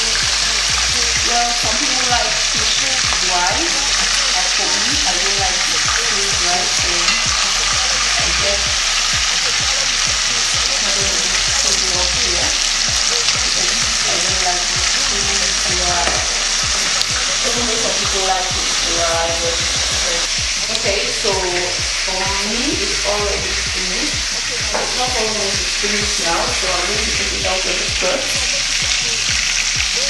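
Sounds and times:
metal spoon stirring: 0.0 - 22.0
fish sizzling in hot oil: 0.0 - 30.0.

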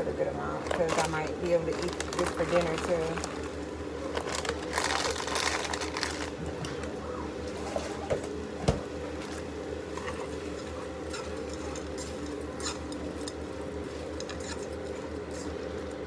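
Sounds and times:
steady low hum: 0.0 - 16.0
utensil stirring in a pot: 10.0 - 16.0.

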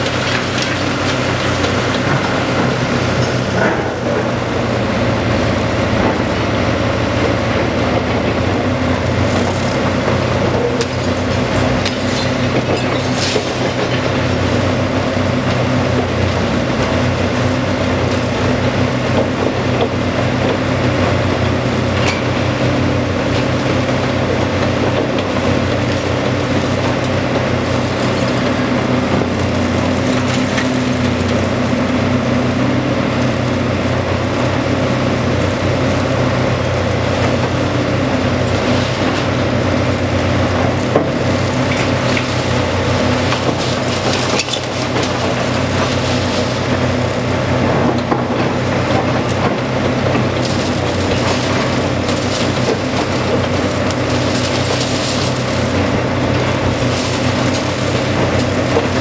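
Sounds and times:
diesel engine drone: 0.0 - 59.0
concrete debris clattering: 9.7 - 14.4, 38.2 - 59.0.

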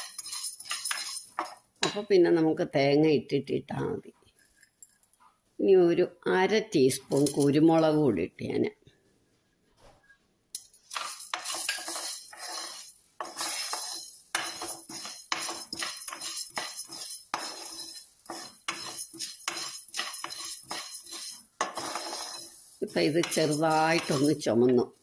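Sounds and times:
wooden spoon stirring seeds in pan: 0.0 - 1.7, 7.0 - 7.7, 10.6 - 25.0.

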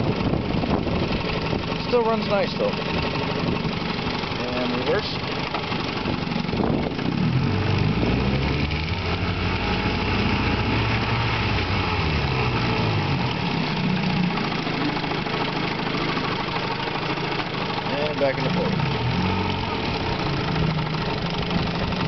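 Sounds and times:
outboard motor running: 0.0 - 22.0.

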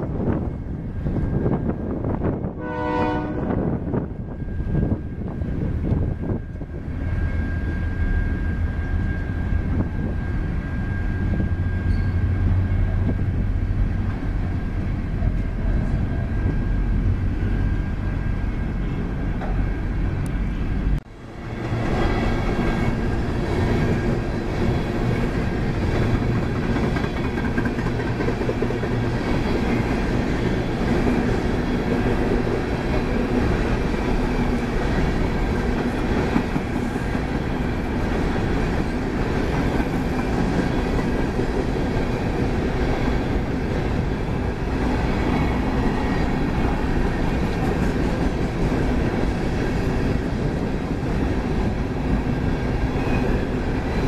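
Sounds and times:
train cars rumbling on rails: 0.0 - 54.0
train wheels clattering: 21.7 - 43.5.

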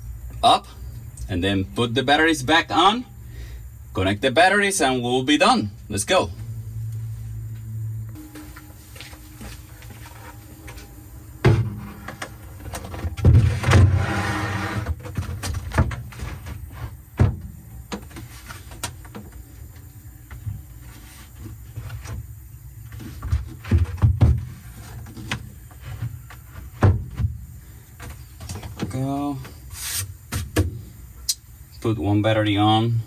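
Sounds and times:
wood board scraping: 8.2 - 17.0
knocks and thumps of wood: 11.4 - 14.1, 14.8 - 19.4, 22.9 - 27.4, 30.3 - 30.9.

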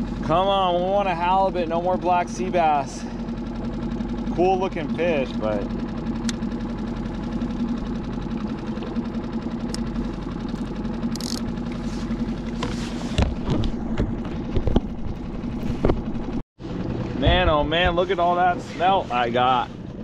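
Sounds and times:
outboard motor idling: 0.0 - 20.0.

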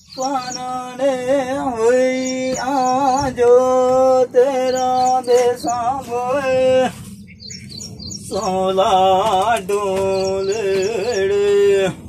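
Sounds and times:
high bird chirps: 0.0 - 3.6, 4.5 - 6.2, 7.2 - 8.9, 9.9 - 11.5.

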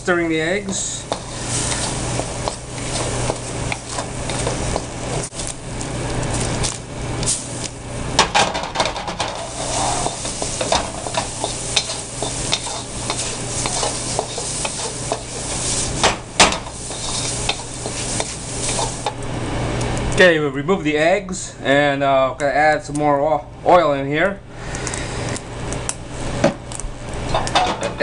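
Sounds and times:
eggs sizzling in oil: 0.0 - 19.8
steady low hum: 0.0 - 28.0
spatula scraping a pan: 0.6 - 5.3, 9.1 - 19.2.

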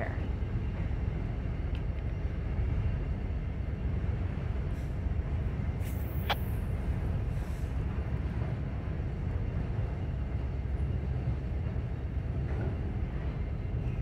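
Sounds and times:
train wheels rumbling on bridge: 0.0 - 14.0.

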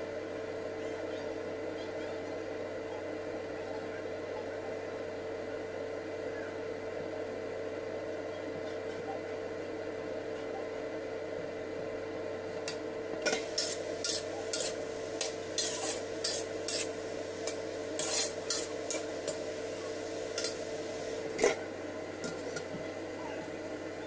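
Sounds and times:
cooktop hum: 0.0 - 24.0
spatula scraping wok: 13.3 - 21.6.

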